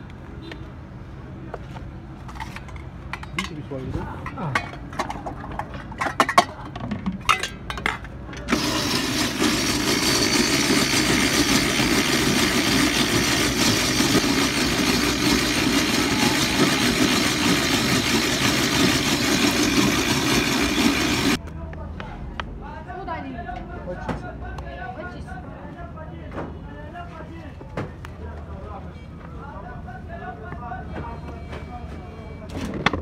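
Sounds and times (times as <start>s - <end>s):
sharp knocks and clatters: 4.3s - 15.9s
ice-shaving machine grating: 8.4s - 21.4s.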